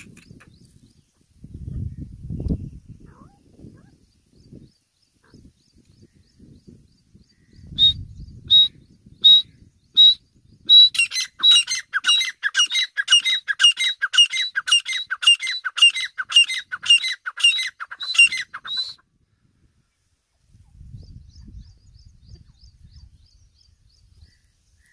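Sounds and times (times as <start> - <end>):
francolin calling: 7.3 - 19.0.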